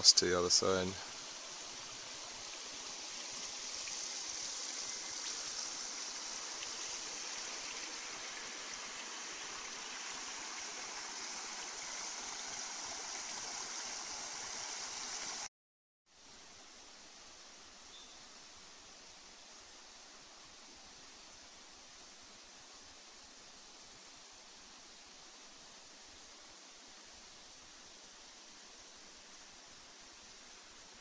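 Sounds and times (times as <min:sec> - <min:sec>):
creek water rushing: 0:00.0 - 0:15.5
faint hiss: 0:00.0 - 0:15.5, 0:16.1 - 0:31.0.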